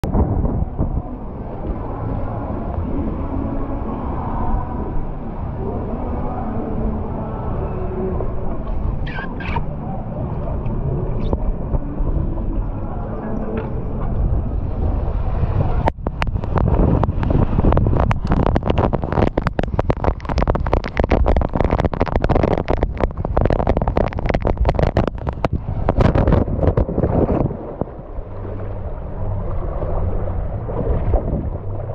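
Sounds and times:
water rushing down slide: 0:14.9 - 0:31.9.

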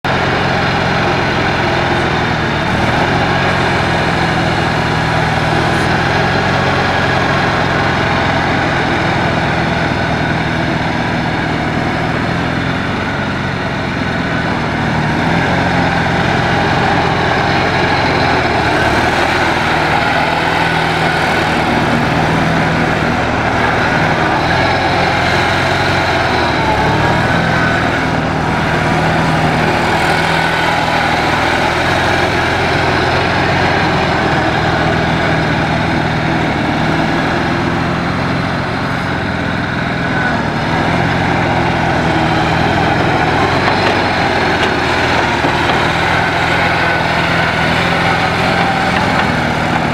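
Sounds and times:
loader engine running: 0:00.0 - 0:49.9.

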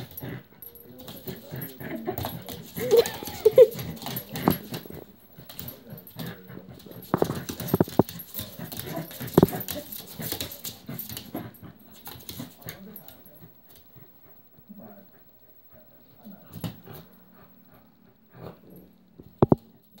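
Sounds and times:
dogs playing: 0:00.0 - 0:20.0.

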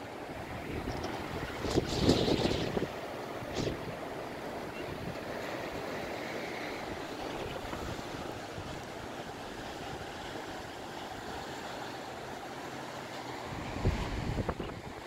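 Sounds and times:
gusty wind through trees: 0:00.0 - 0:15.0
wind buffeting microphone: 0:00.4 - 0:05.9, 0:13.5 - 0:15.0.

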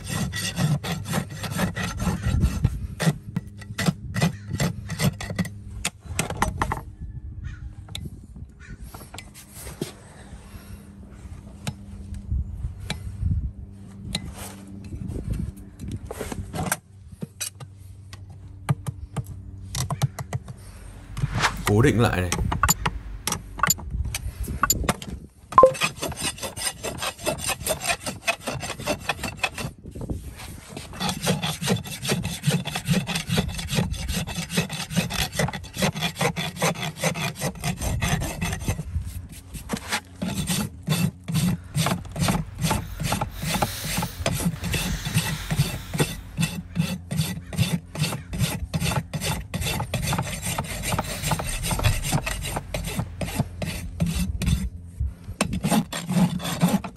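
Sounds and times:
rasp filing hoof: 0:00.0 - 0:05.6, 0:25.6 - 0:56.9.

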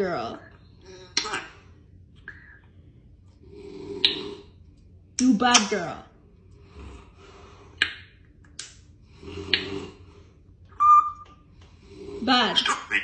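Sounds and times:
parrot whistling: 0:10.8 - 0:11.4.

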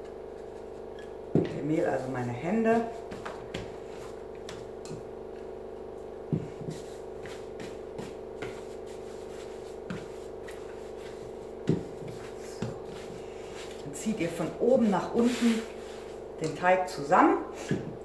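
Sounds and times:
hands kneading bread dough: 0:00.0 - 0:17.0
steady hum: 0:00.0 - 0:18.0.

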